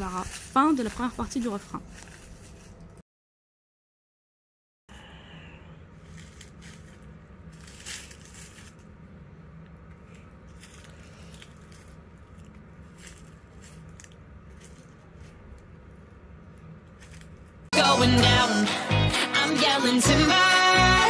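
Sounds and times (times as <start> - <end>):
footsteps on dry leaves: 0.0 - 2.9, 6.0 - 8.8, 10.5 - 15.4.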